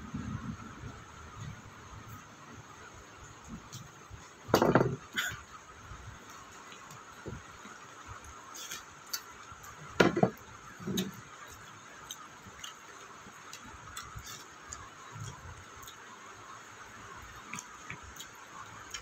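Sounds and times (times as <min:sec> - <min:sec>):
person chewing with mouth clicks: 0:13.5 - 0:16.0, 0:17.4 - 0:19.0.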